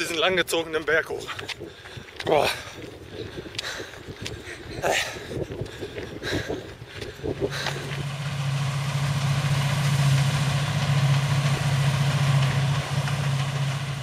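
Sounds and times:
combine harvester engine drone: 7.2 - 14.0.

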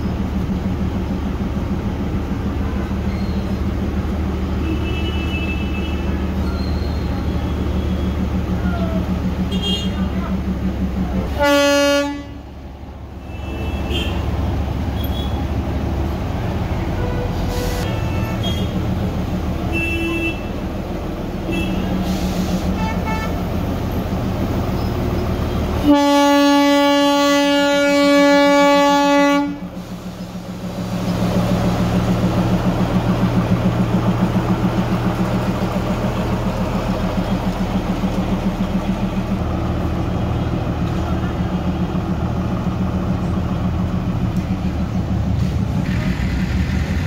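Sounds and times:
diesel locomotive engine throbbing: 0.0 - 47.0
locomotive horn blast: 4.6 - 6.2, 9.5 - 10.3, 11.3 - 12.5, 13.2 - 15.4, 16.8 - 18.8, 19.6 - 20.6, 21.4 - 23.6, 25.8 - 29.8.

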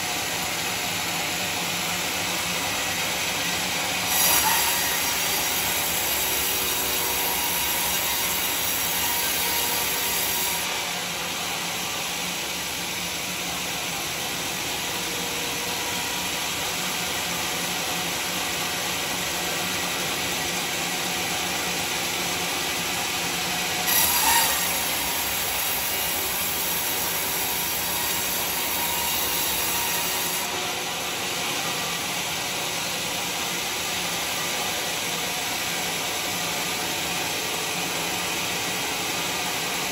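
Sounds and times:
band saw blade cutting log: 3.9 - 10.9, 23.8 - 30.6.

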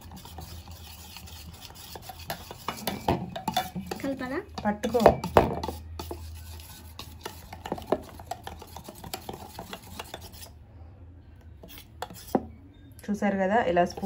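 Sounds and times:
wire whisk stirring batter: 0.0 - 10.5, 11.6 - 12.4, 13.7 - 14.0
whisk clicking against bowl: 0.1 - 10.5.

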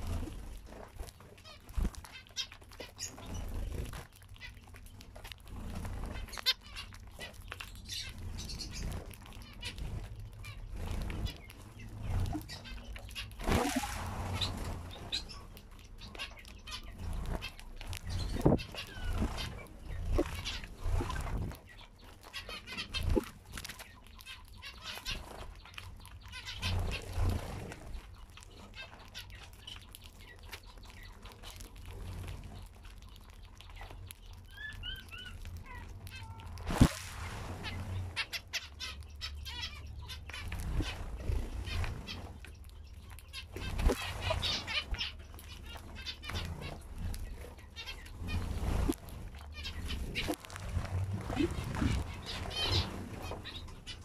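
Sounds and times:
wing flutters: 0.0 - 29.8, 34.8 - 54.0
finches calling: 37.6 - 54.0.

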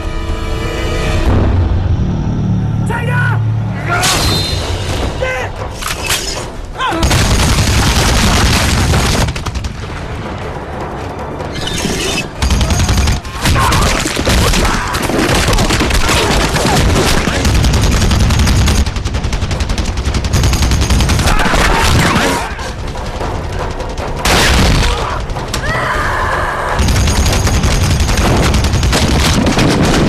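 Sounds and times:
machine gun firing bursts: 7.0 - 10.0, 12.4 - 24.5, 26.8 - 30.0
explosions: 7.0 - 11.6, 26.8 - 30.0.

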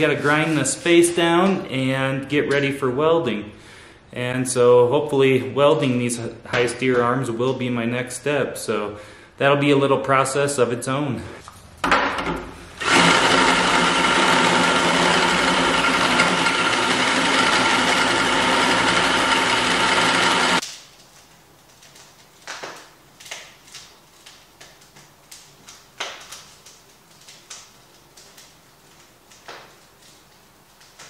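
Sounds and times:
cordless drill boring metal: 12.8 - 20.6.

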